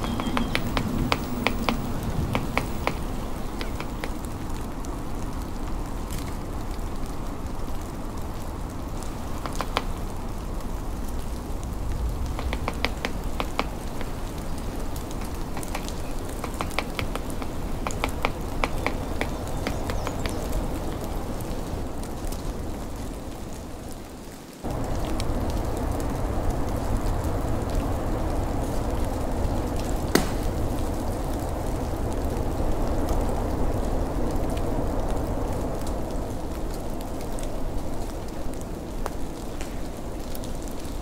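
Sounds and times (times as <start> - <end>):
bird pecking wooden post: 0.0 - 4.2, 12.4 - 14.2, 15.2 - 20.4
hiss of snowstorm: 0.0 - 41.0.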